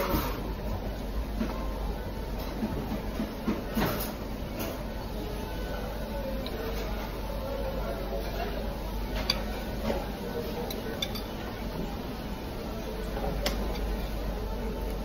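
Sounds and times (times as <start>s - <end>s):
low steady hum: 0.0s - 15.0s
cutlery clinking on ceramic plates: 10.6s - 11.4s.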